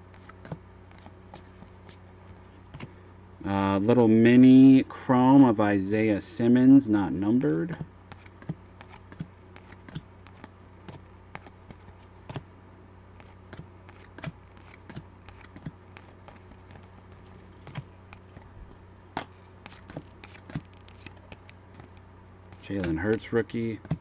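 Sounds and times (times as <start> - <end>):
trading cards being flipped: 0.0 - 3.0, 7.4 - 12.5, 13.1 - 24.0
low steady hum: 0.0 - 24.0.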